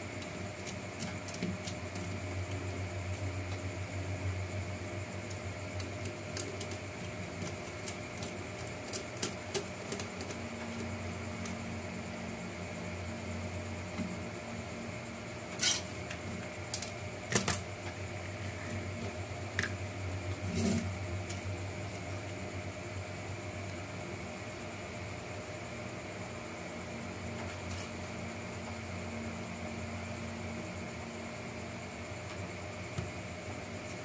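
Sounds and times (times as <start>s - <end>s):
steady background hum: 0.0s - 34.0s.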